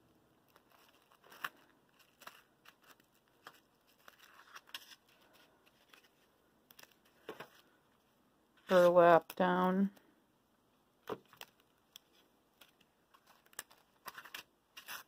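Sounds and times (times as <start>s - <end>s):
fingers rustling ribbon: 0.4s - 7.8s, 11.2s - 15.0s.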